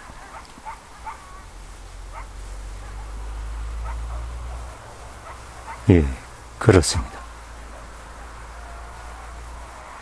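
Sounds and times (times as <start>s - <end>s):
high animal yips: 0.1s - 1.5s.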